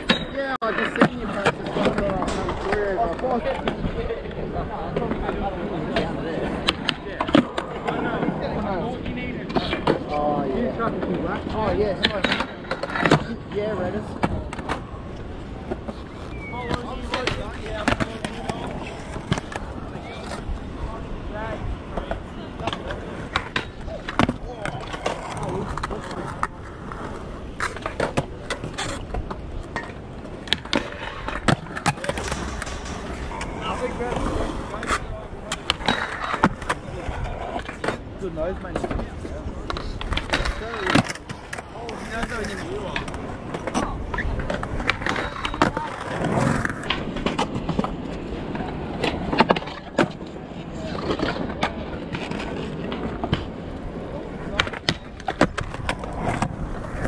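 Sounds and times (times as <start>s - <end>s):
skateboard wheels rumbling on concrete: 0.0s - 57.0s
skateboards clacking on ground: 0.0s - 57.0s.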